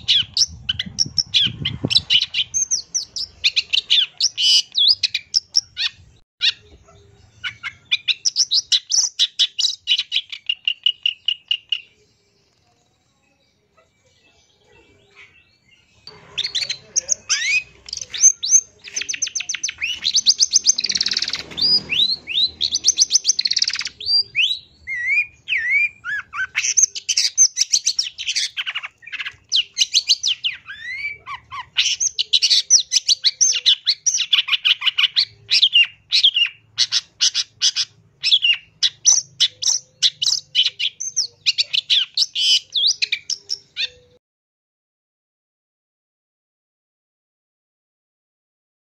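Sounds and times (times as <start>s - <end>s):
shrike singing: 16.0s - 44.0s.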